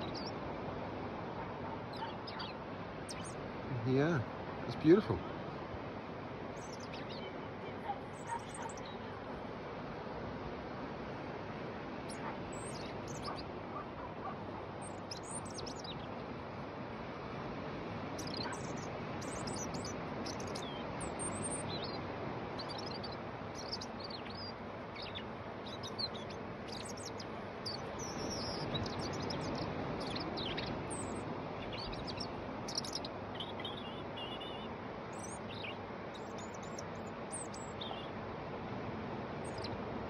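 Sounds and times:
robin singing: 0.0s - 0.4s, 1.6s - 5.3s, 6.5s - 9.3s, 12.1s - 16.2s, 18.2s - 38.2s, 39.4s - 39.8s.

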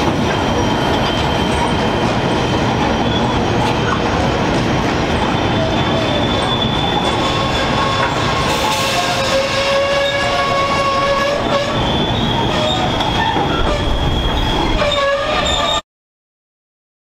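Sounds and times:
wagons rumbling on rails: 0.0s - 15.8s
wagon wheels squealing: 5.1s - 15.8s.

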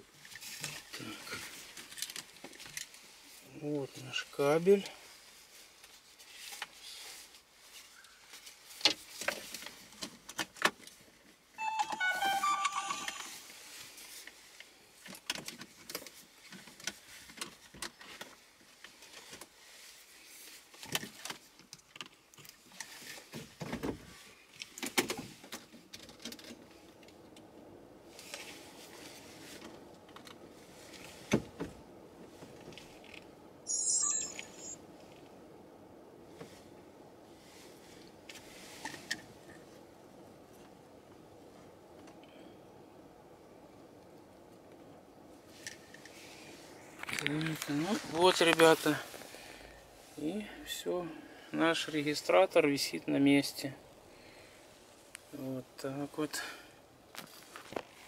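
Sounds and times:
brief pitched tone: 11.6s - 13.6s, 33.7s - 34.8s.

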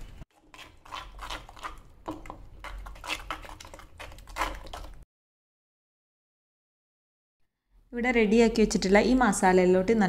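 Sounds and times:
metal spoon scraping thick paste: 0.0s - 5.0s.

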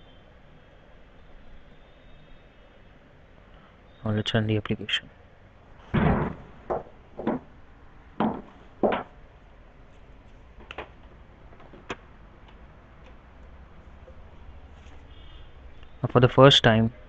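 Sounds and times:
low steady hum: 0.0s - 17.0s
short knocks and clicks: 6.0s - 7.5s.

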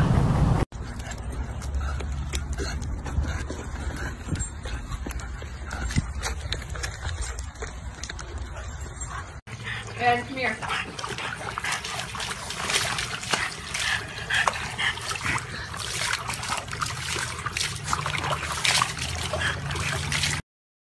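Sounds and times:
water splashing in plastic tub: 9.9s - 20.4s.

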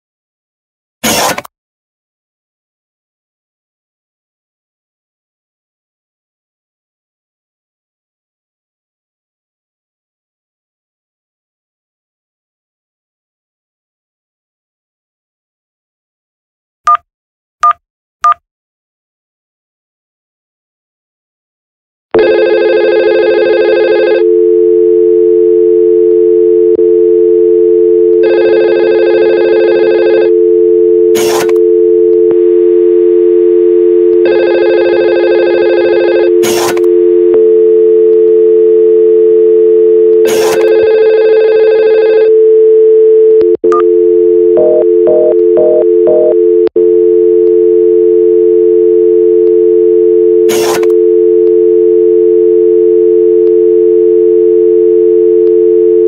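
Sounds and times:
telephone dial tone: 22.2s - 56.0s
telephone ringing tone: 22.2s - 56.0s
keypad dialing beeps: 50.2s - 56.0s.

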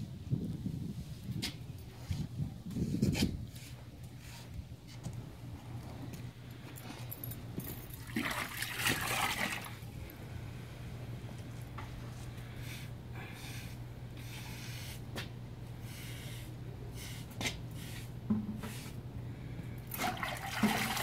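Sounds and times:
steady low hum: 0.0s - 21.0s
water trickling and splashing: 7.8s - 9.9s, 19.9s - 21.0s.

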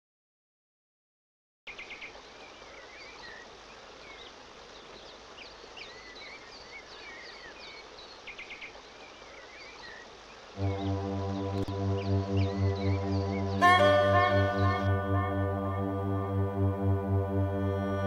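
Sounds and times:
steady background hiss: 1.7s - 18.0s
music with brass-like chords: 10.6s - 18.0s
birds chirping and whistling: 12.0s - 15.5s.

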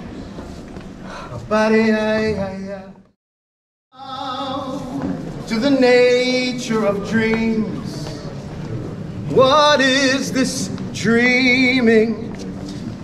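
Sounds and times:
man singing with vibrato: 1.4s - 3.1s, 3.9s - 8.3s, 9.3s - 12.4s.

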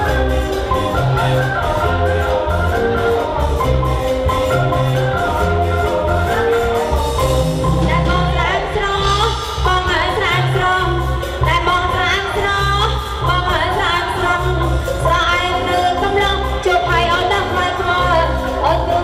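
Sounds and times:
high ornamented melody: 0.0s - 12.0s.

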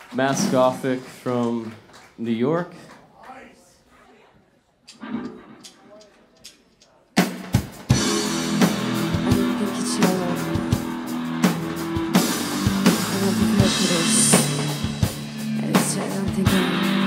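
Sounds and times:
rock band playing live: 7.2s - 17.0s.

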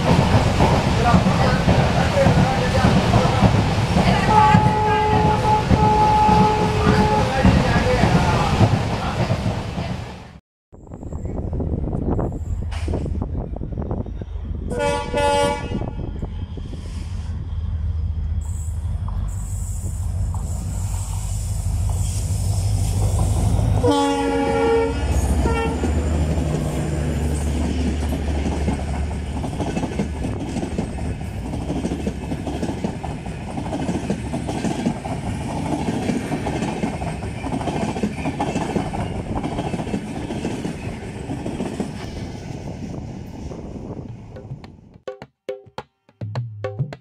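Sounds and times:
train wheels clickety-clack: 0.0s - 9.9s, 25.8s - 42.2s
locomotive engine rumble: 0.0s - 45.0s
train horn: 4.2s - 7.6s, 14.7s - 16.4s, 23.8s - 26.0s.

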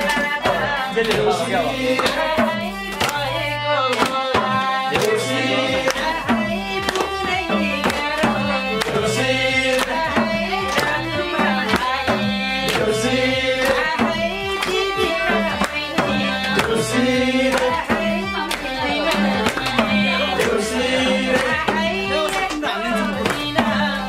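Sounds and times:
hand drum beating: 0.0s - 24.0s
electronic keyboard melody: 5.0s - 24.0s.

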